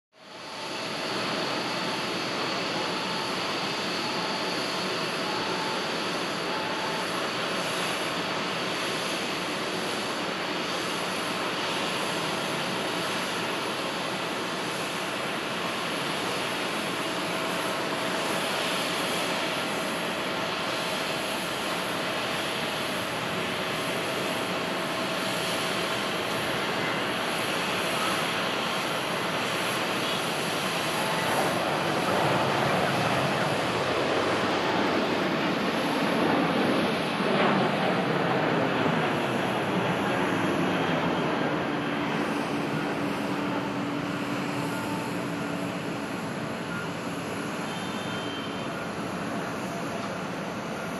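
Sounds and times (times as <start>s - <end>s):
faint engine whine: 0.2s - 50.9s
jet engine roar: 0.2s - 50.9s.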